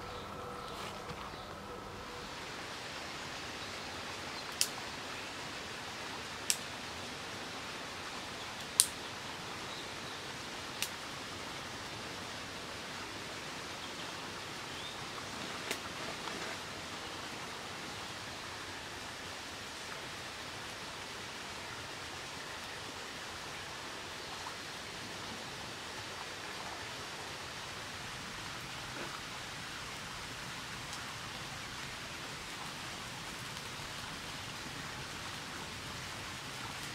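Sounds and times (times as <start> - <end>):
steady outdoor hiss: 0.0 - 36.9
sharp snaps: 4.5 - 4.8, 6.4 - 6.7, 8.6 - 9.0, 10.8 - 11.0.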